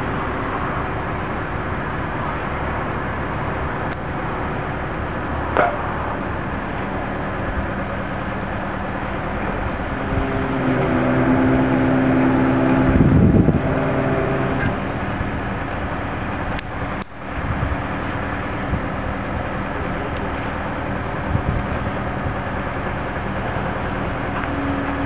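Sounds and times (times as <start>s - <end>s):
diesel engine droning: 0.0s - 25.0s
loud low rumble: 0.0s - 25.0s.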